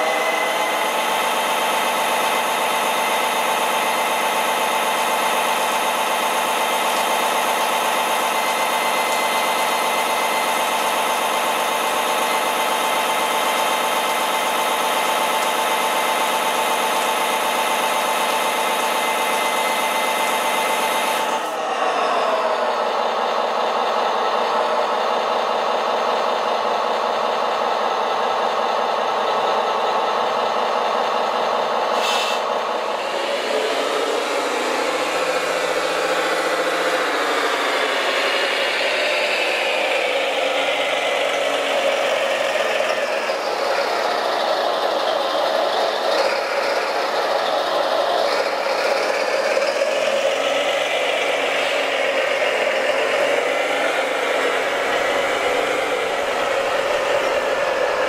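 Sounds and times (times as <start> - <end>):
toy truck mechanical hum: 0.0 - 58.0.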